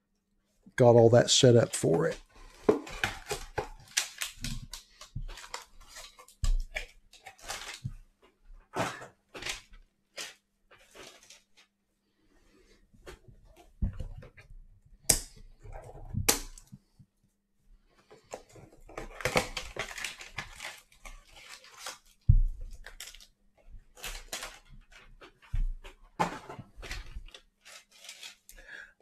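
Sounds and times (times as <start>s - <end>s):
cellophane wrap crinkling: 2.4s - 7.9s, 19.0s - 23.3s, 23.9s - 25.6s, 26.8s - 28.5s
cardboard boxes torn open: 18.9s - 22.2s.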